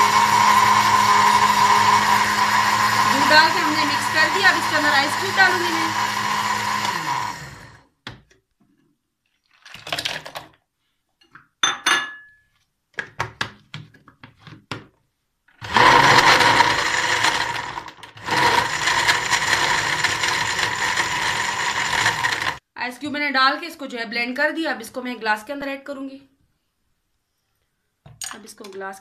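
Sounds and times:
blender motor: 0:00.0 - 0:07.8, 0:15.6 - 0:22.6.

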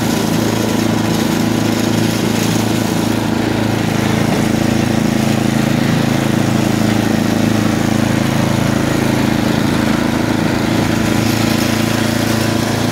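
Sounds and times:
snowblower engine running: 0:00.0 - 0:12.9.

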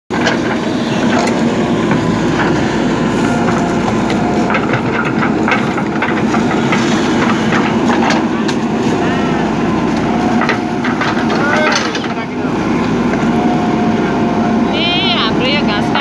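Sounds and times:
diesel engine running under load: 0:00.1 - 0:16.0.

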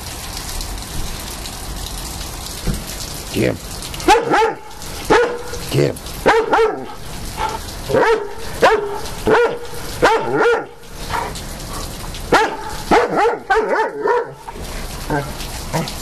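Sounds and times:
rain hissing: 0:00.0 - 0:16.0
dog barking: 0:04.0 - 0:05.6, 0:06.2 - 0:11.4, 0:12.3 - 0:14.5.

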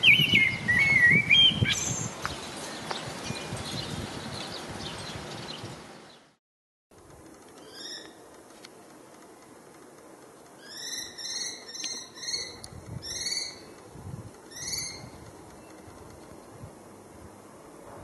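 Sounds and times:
kestrel calling: 0:07.6 - 0:08.2, 0:10.6 - 0:13.8, 0:14.4 - 0:15.9.

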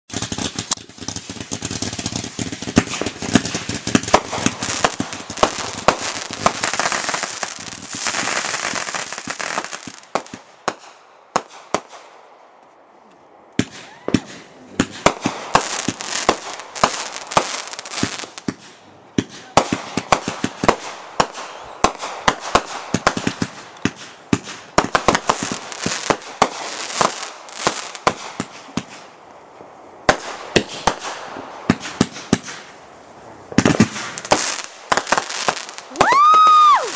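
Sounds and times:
firework cakes bangs: 0:00.1 - 0:12.1, 0:13.6 - 0:29.1, 0:33.5 - 0:36.9.

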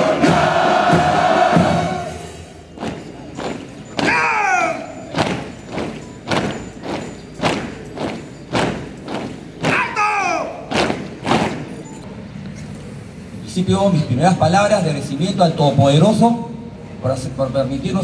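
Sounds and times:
shouted call: 0:04.0 - 0:05.5, 0:09.6 - 0:10.9.

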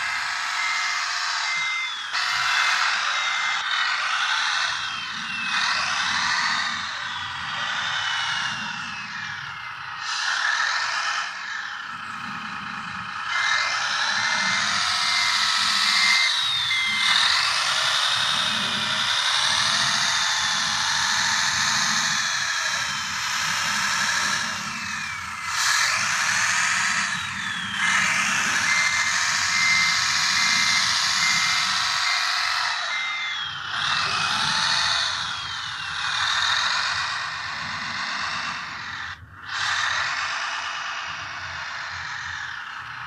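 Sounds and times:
pulsing beep: 0:00.0 - 0:10.0, 0:11.8 - 0:22.9, 0:23.6 - 0:36.8
electric motors and hydraulics whining: 0:00.0 - 0:43.0.

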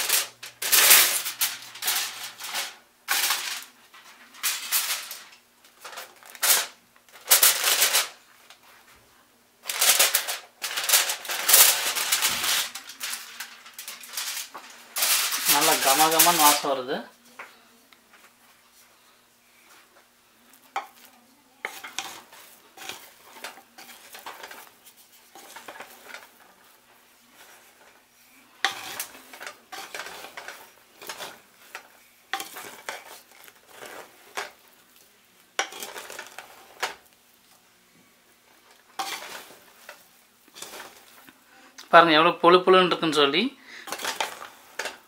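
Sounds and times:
wooden spatula scraping metal pot: 0:19.6 - 0:34.8, 0:35.6 - 0:37.1, 0:38.5 - 0:41.4, 0:43.8 - 0:45.0.

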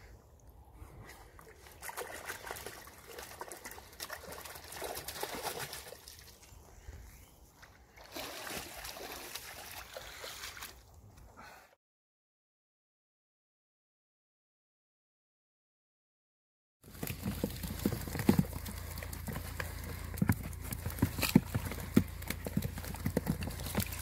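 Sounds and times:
water splashing and trickling: 0:00.3 - 0:06.8, 0:07.5 - 0:11.1, 0:22.4 - 0:24.0.

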